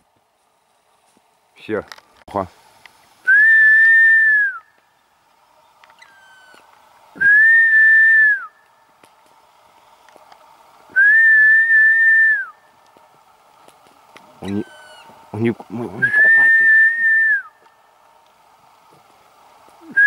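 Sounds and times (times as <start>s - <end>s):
long whistled notes: 3.2s - 4.8s, 7.2s - 8.7s, 10.9s - 12.7s, 16.0s - 17.6s.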